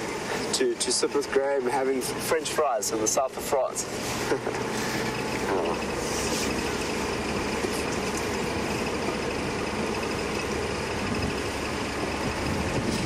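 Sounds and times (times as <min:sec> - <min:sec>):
vehicle engine running: 0:00.0 - 0:13.0
vehicle rumble and rattle: 0:00.0 - 0:13.0.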